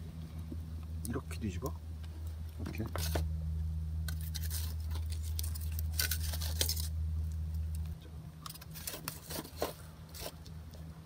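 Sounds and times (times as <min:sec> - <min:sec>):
low steady hum: 0:00.0 - 0:11.0
foil crinkling: 0:04.1 - 0:07.0, 0:08.5 - 0:10.5.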